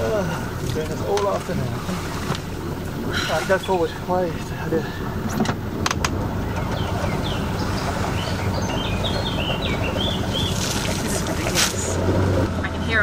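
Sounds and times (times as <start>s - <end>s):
boat engine running: 0.0s - 13.0s
small birds chirping: 2.6s - 11.9s.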